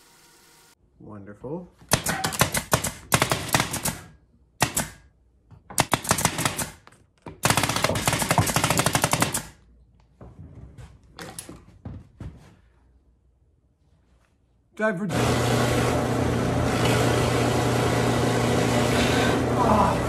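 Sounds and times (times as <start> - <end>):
pin nailer rapid clicks: 1.9 - 5.0, 5.8 - 6.8, 7.4 - 9.6.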